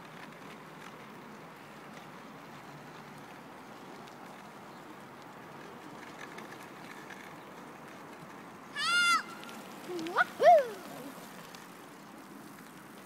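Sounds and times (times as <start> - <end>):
faint outdoor background noise: 0.0 - 13.0.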